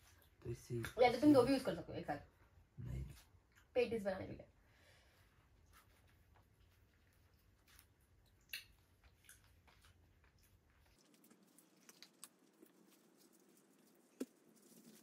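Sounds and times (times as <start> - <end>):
pastry sheets crinkling: 9.6 - 15.0.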